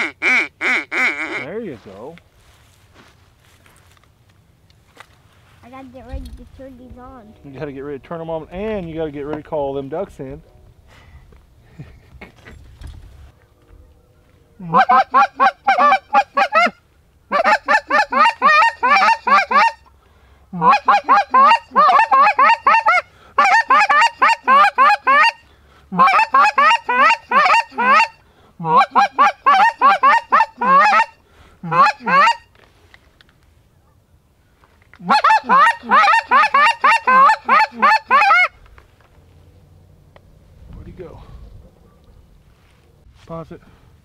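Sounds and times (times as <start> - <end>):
goose call honking: 0.0 - 1.6, 14.5 - 19.9, 20.6 - 32.5, 35.0 - 38.6.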